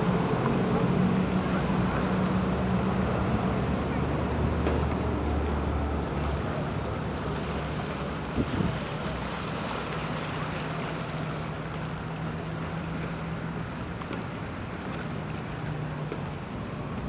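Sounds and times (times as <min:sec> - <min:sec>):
ship engine drone: 0:00.0 - 0:17.0
wind noise: 0:08.3 - 0:08.9.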